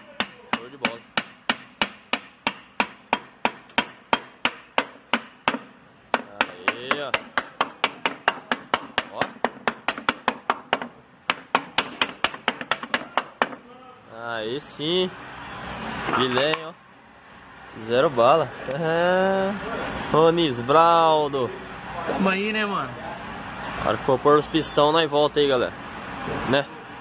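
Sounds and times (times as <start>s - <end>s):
hammer blows on wooden block: 0.1s - 13.7s.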